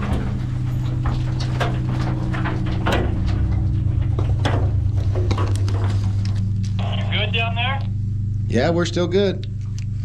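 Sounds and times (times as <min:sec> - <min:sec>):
hoist barrel knocking and rattling: 0:00.0 - 0:06.0
low machine hum: 0:00.0 - 0:10.0.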